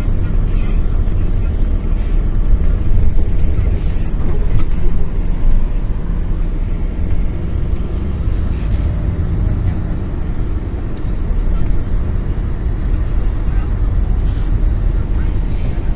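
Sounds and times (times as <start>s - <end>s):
bus engine and road rumble: 0.0s - 15.9s.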